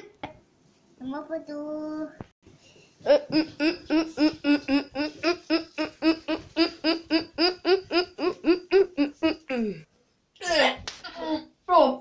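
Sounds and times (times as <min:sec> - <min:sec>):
child making laugh-like syllables: 0:03.0 - 0:09.9.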